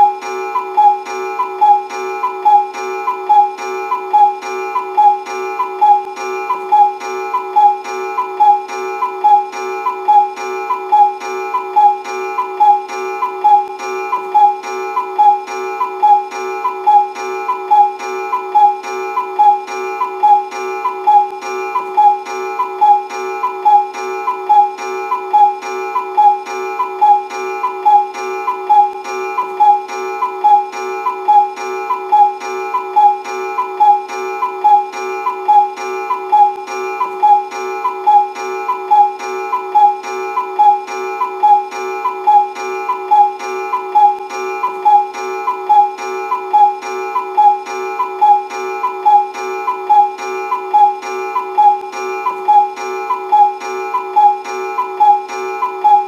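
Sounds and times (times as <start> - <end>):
cuckoo clock calling: 0.0 - 56.0.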